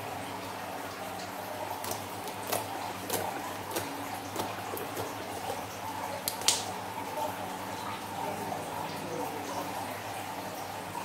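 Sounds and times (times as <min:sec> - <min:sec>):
slime squelching: 0:01.8 - 0:06.6.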